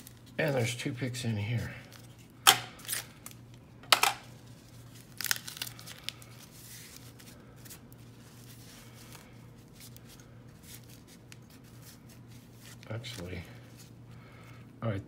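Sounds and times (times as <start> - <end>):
paper rustling: 4.6 - 14.0
tissue paper tearing: 4.7 - 13.9.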